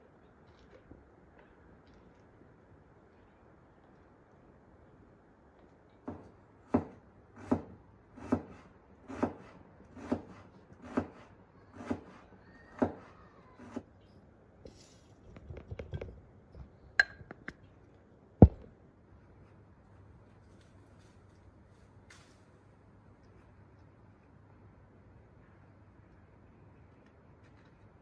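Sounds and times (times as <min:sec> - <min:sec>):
knife chopping on wooden board: 0:06.1 - 0:11.2, 0:18.4 - 0:18.6.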